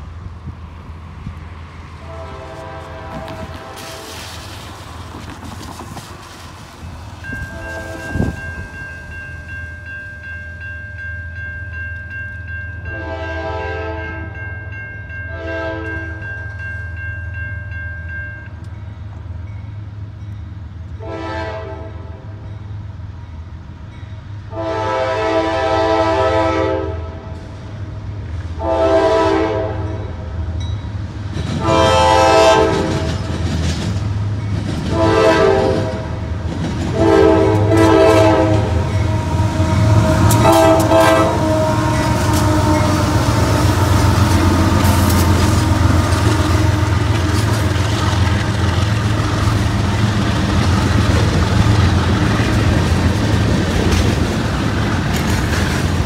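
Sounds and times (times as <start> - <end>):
locomotive air horn blasts: 2.0 - 4.4, 7.4 - 8.4, 12.9 - 14.4, 15.3 - 16.2, 21.0 - 22.4, 24.5 - 27.4, 28.6 - 30.2, 31.6 - 33.2, 34.9 - 36.3, 36.9 - 47.6.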